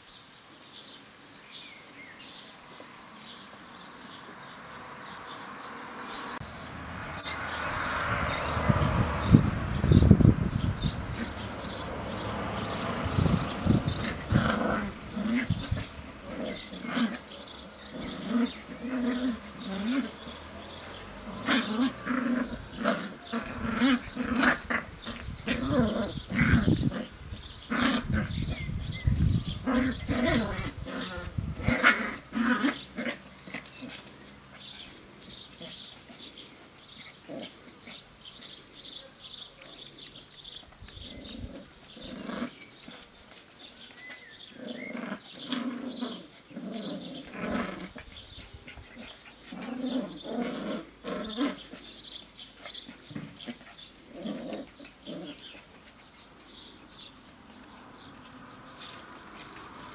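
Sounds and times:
puppies growling and yapping: 7.2s - 59.9s.

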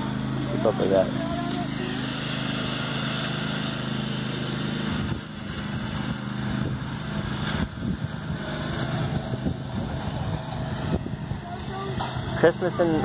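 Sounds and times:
riding lawn mower engine: 0.0s - 13.0s
wind buffeting microphone: 4.9s - 12.4s.

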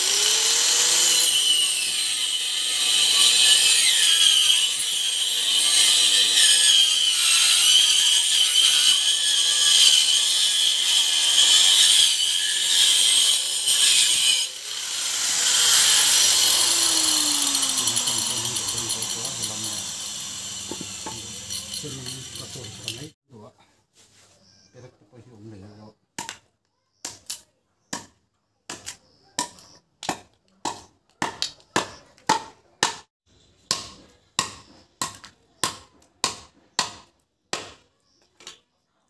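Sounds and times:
angle grinder cutting wood: 0.0s - 23.2s.

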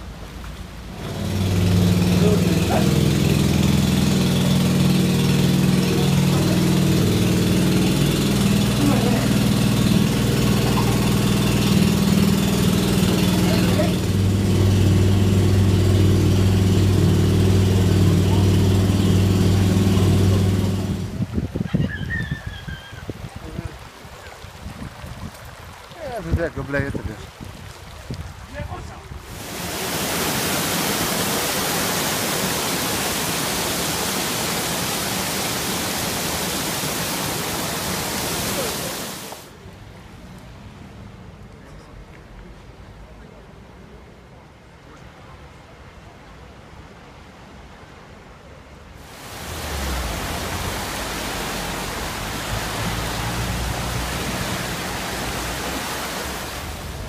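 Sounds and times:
floodwater rushing across road: 0.0s - 44.2s, 44.8s - 57.0s.

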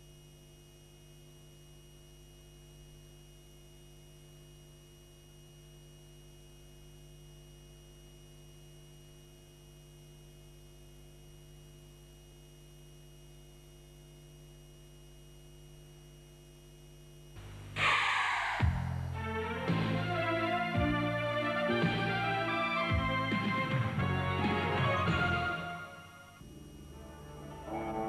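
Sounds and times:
electrical mains hum: 0.0s - 28.0s
tape hiss: 10.0s - 28.0s.

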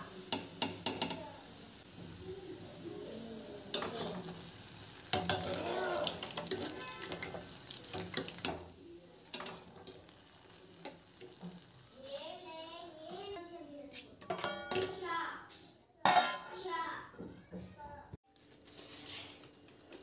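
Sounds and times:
hot oil sizzling: 0.0s - 15.5s.

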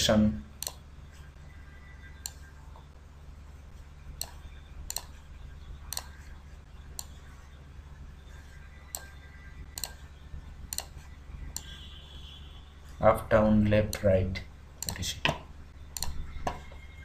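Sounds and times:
low steady hum: 0.0s - 17.0s
mouse button clicking: 4.2s - 5.1s, 9.8s - 10.0s.

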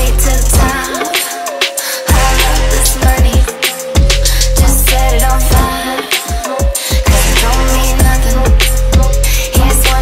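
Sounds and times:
kick drum beat: 0.6s - 0.9s, 2.1s - 2.4s, 3.0s - 4.8s, 5.5s - 7.4s
deep held bass: 4.1s - 5.6s, 7.1s - 10.0s.

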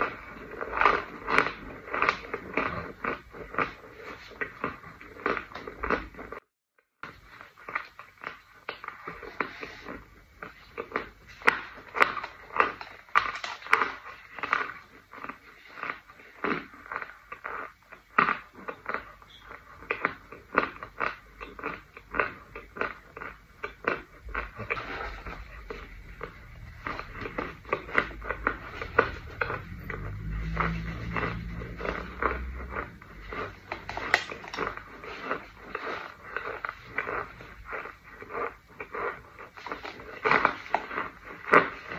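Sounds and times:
crunching and chewing: 0.0s - 6.4s, 7.0s - 41.9s
low rumble: 25.2s - 34.7s.

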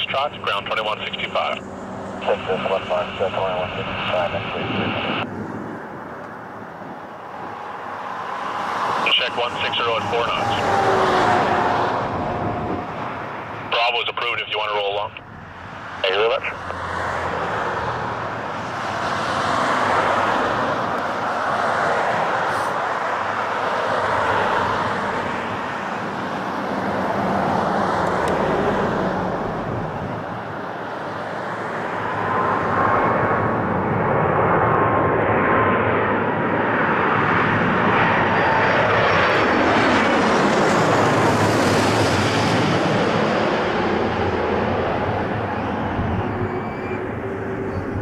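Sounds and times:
jet airliner passing overhead: 0.0s - 48.0s
whining fan tones: 1.3s - 13.8s.

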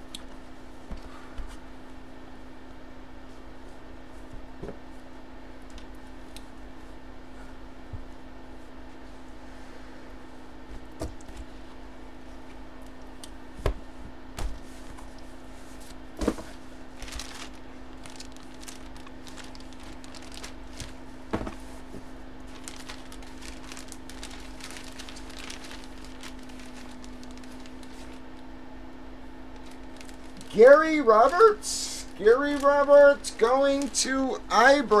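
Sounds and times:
steady hum: 0.0s - 35.0s
plastic crinkling: 16.4s - 21.7s, 22.4s - 28.4s, 29.5s - 34.3s
boxes knocking on table: 21.3s - 21.6s.

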